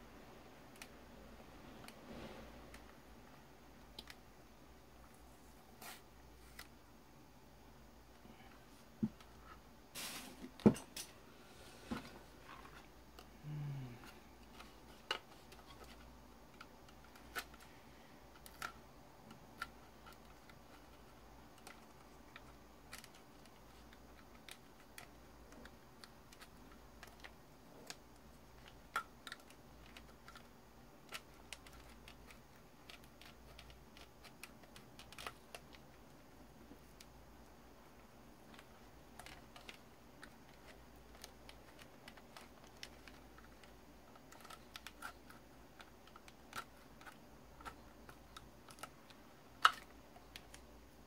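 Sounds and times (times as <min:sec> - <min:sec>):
hard plastic parts clicking: 0:38.0 - 0:50.8.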